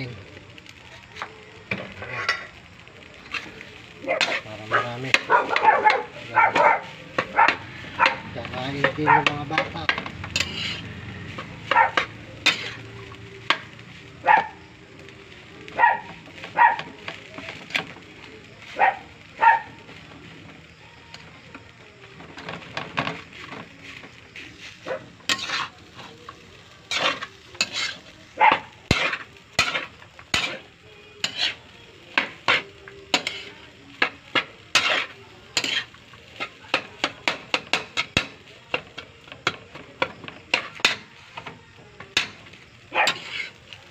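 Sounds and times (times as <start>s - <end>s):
metal spatula scraping a wok: 1.7s - 2.6s, 3.2s - 3.6s, 4.2s - 6.2s, 6.8s - 14.0s, 22.4s - 28.2s, 28.8s - 41.5s, 42.1s - 43.8s.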